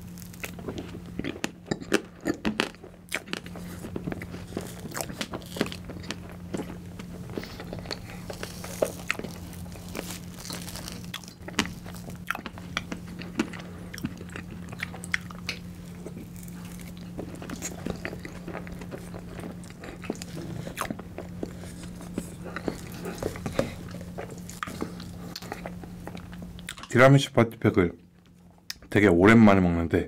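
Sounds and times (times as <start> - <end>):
steady low hum: 0.0 - 30.0
chewing and lip smacks: 0.2 - 27.0.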